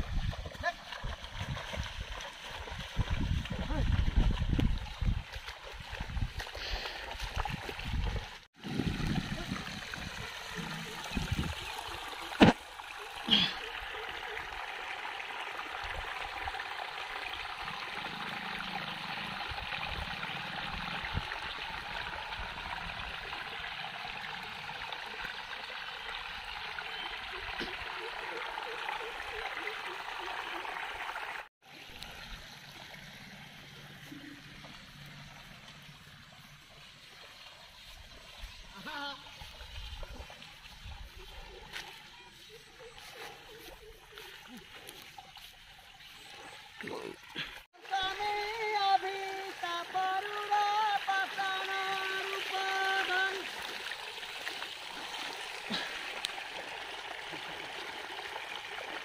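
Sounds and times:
water trickling and gurgling: 0.0 - 59.0.

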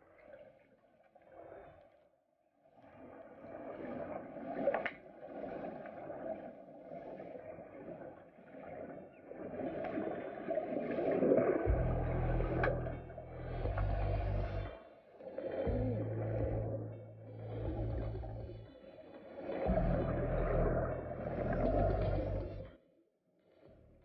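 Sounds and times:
underwater bubbling: 2.8 - 22.7
low steady hum: 11.7 - 14.8, 15.5 - 18.8, 19.6 - 22.7.

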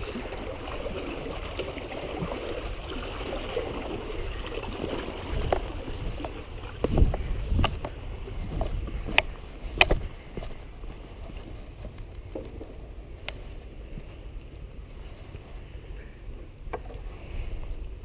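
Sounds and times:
wind and water hiss: 0.0 - 18.0
footsteps on rocks and dirt: 5.4 - 12.0.

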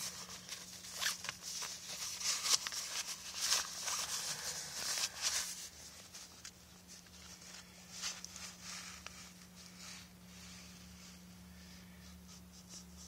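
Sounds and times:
packaging rustling and crinkling: 0.0 - 9.6.

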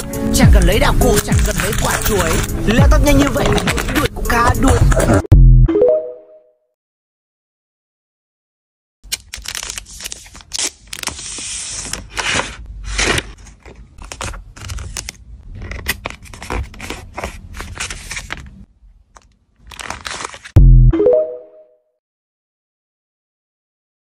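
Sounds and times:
plastic sleeves crinkling: 0.6 - 4.1, 9.1 - 20.6.

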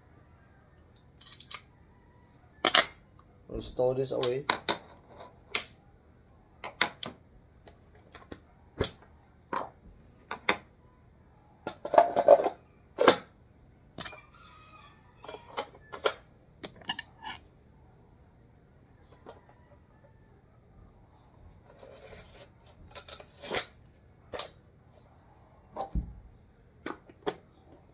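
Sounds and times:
rifle parts clicking and rattling: 1.0 - 1.7.

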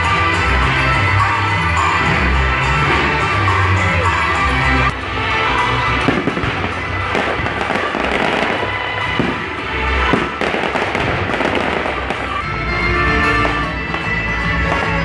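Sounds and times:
music playing: 0.0 - 15.0
fireworks bangs and crackles: 5.8 - 15.0.

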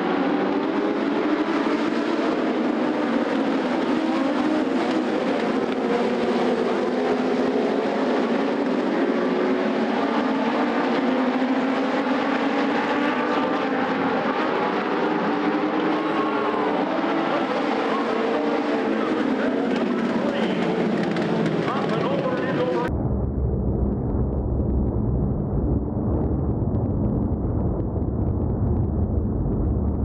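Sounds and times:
racing car engines at high revs: 0.0 - 22.9.

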